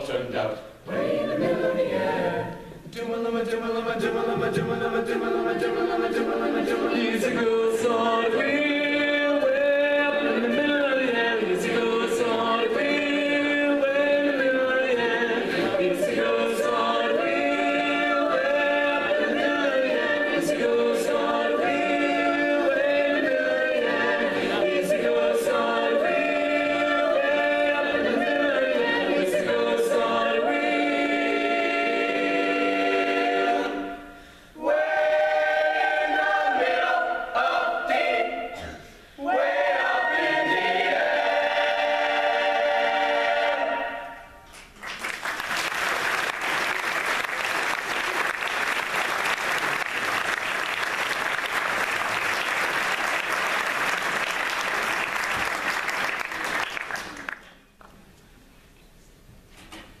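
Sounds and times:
choir singing a cappella: 0.0s - 44.4s
audience applause: 44.8s - 57.5s.

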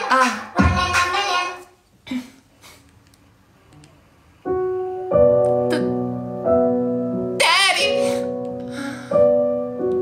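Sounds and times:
slow piano chords: 4.4s - 10.0s.

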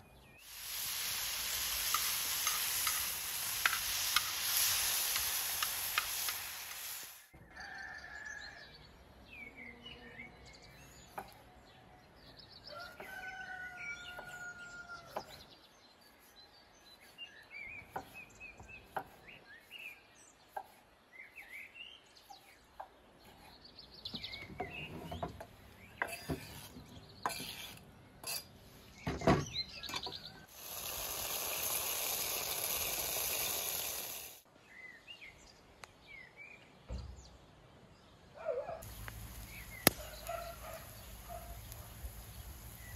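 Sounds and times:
mushrooms sizzling in pan: 0.4s - 7.3s, 30.5s - 34.4s, 38.9s - 40.3s, 40.9s - 42.9s
birds chirping: 33.3s - 42.9s.

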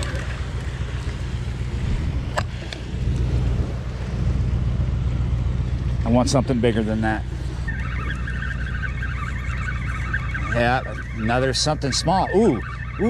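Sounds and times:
wind on microphone: 0.0s - 5.0s.

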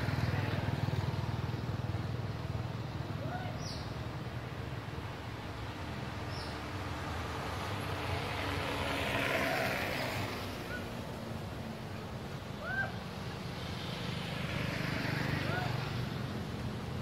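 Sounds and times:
vehicle passing: 4.7s - 17.0s.

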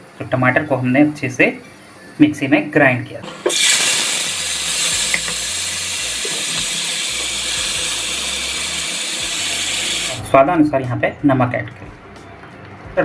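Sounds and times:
puree sizzling in hot oil: 3.3s - 10.2s.

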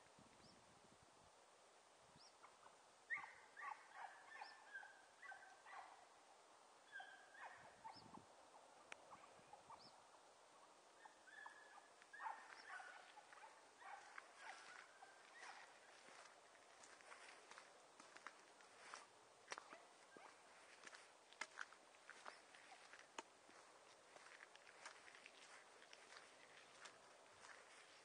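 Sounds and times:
hunting dogs yelping: 2.4s - 6.0s, 6.8s - 8.2s, 8.8s - 9.9s, 11.0s - 17.6s, 19.6s - 20.9s.

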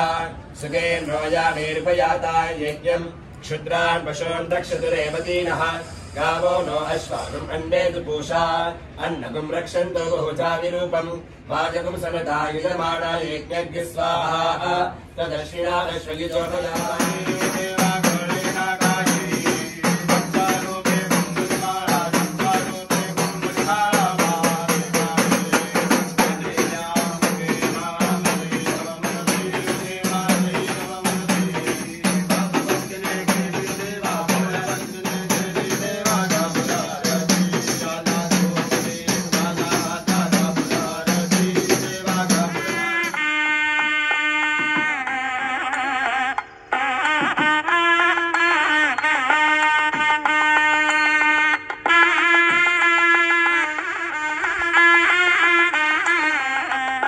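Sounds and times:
bells and jingling percussion: 16.4s - 43.2s, 48.8s - 52.8s
steady drumbeat: 16.4s - 43.3s.

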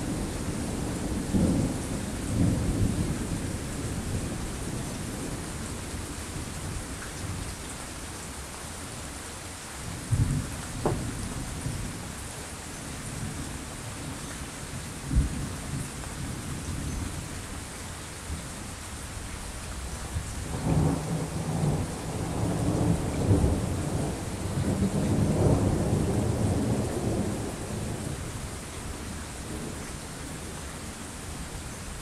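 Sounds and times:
steady rain: 0.0s - 32.0s
thunder rumbling: 20.5s - 30.6s.

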